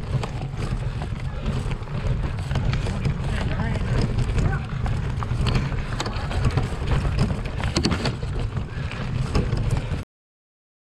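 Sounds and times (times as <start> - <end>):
bicycle rattling over rough ground: 0.0 - 10.0.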